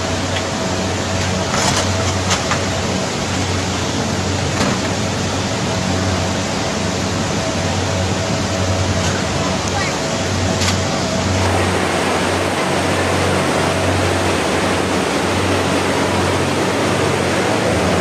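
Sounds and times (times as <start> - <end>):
floodwater rushing: 0.0 - 18.0.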